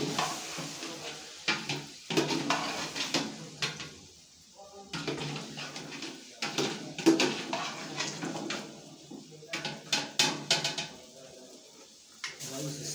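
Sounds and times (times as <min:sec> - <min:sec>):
metal spoon scraping metal pot: 0:07.1 - 0:08.2.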